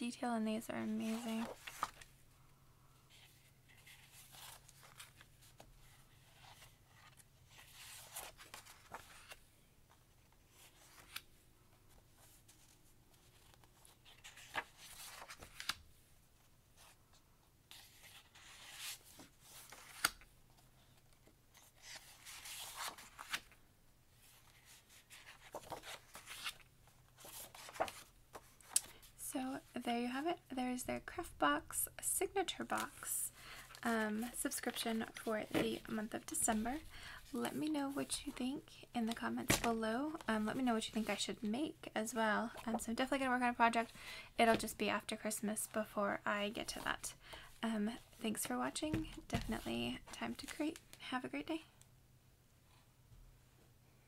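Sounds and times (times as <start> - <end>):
paper sheets rustling: 0.9 - 2.1, 11.9 - 15.8, 17.7 - 20.2, 21.5 - 23.6, 24.2 - 29.2, 32.5 - 38.4.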